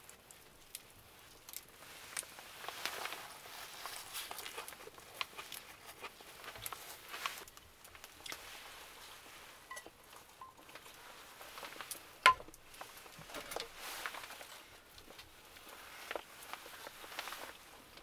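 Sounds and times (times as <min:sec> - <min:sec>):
chopsticks and skillet clinking: 0:09.7 - 0:10.6.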